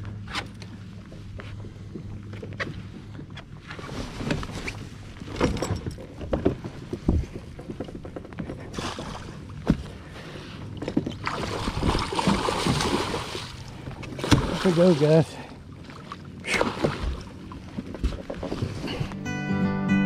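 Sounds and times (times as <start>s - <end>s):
fish thrashing and splashing: 11.0s - 19.0s.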